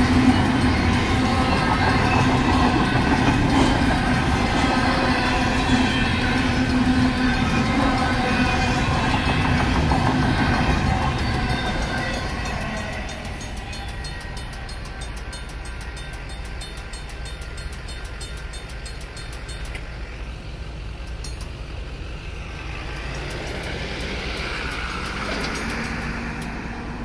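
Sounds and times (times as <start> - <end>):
rough mechanical crossing bell: 0.0 - 19.8
train rumbling over crossing: 0.0 - 27.0.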